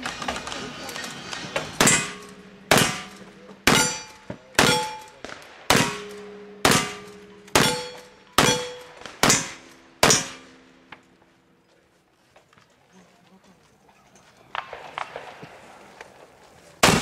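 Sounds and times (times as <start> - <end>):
rifle shots: 0.0 - 10.8, 16.8 - 17.0
bullet clanging on steel target: 1.8 - 5.2, 5.8 - 10.9.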